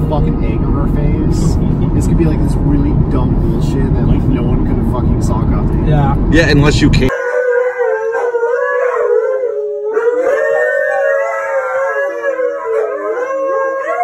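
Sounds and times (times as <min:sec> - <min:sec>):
dogs howling together: 0:07.1 - 0:14.0.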